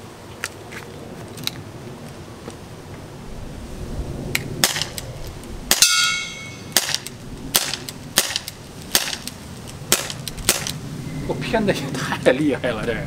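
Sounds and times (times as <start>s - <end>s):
airsoft pistol shots: 4.6s - 4.9s, 5.7s - 9.3s, 9.9s - 10.7s
bb striking metal: 5.7s - 7.0s.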